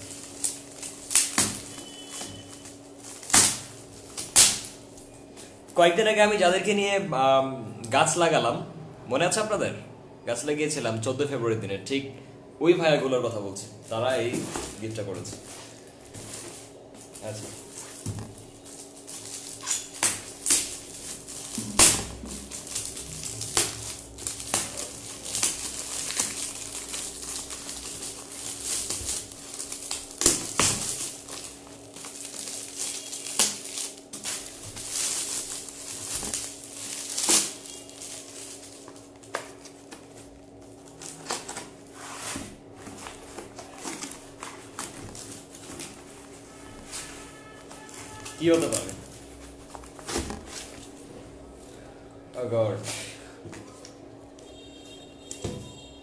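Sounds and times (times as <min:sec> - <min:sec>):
wrapping paper tearing and crumpling: 0:00.0 - 0:05.1, 0:14.8 - 0:51.0.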